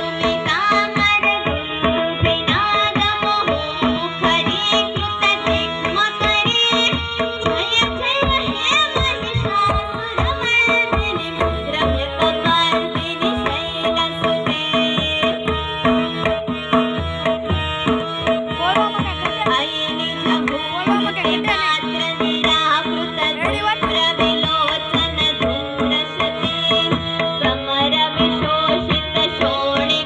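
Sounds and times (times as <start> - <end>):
woman singing: 0.0 - 15.8, 18.5 - 30.0
harmonium drone: 0.0 - 30.0
tabla playing: 0.0 - 30.0.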